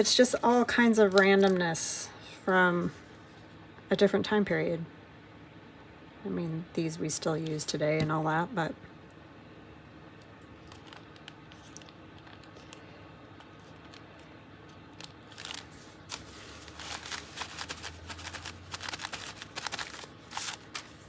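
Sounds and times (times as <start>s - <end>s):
paper rustling and scraping: 15.0s - 21.0s.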